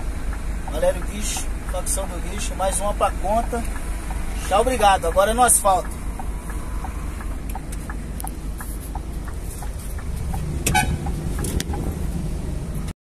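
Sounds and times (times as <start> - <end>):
diesel truck engine rumbling: 0.0 - 13.0
truck horn toot: 10.6 - 11.1.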